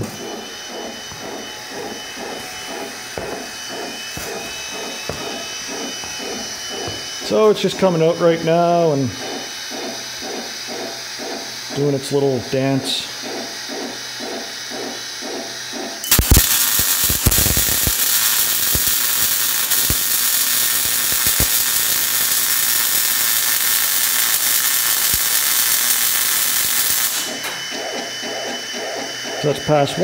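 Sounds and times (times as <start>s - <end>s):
robot arm mechanical whirs: 0.0s - 7.4s
welding arc crackling hiss: 16.0s - 27.6s.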